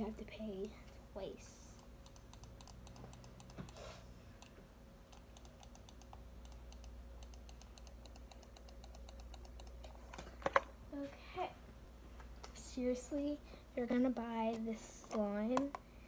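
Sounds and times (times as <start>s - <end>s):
computer mouse clicking: 1.8s - 10.0s.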